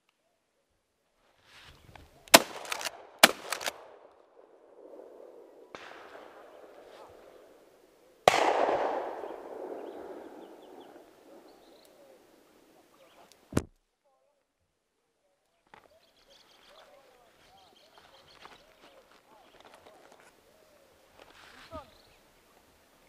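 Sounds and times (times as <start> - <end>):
shotgun shots: 2.3 - 4.1, 4.8 - 7.5, 8.2 - 11.7.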